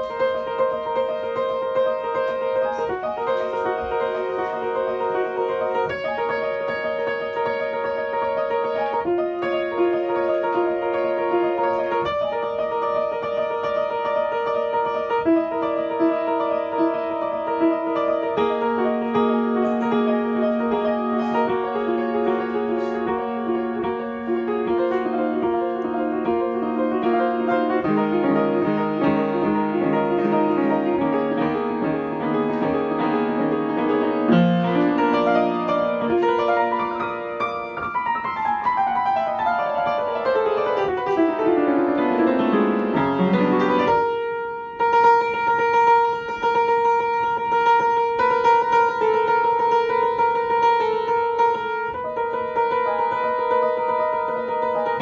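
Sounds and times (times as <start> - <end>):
piano playing chords: 0.0 - 55.0.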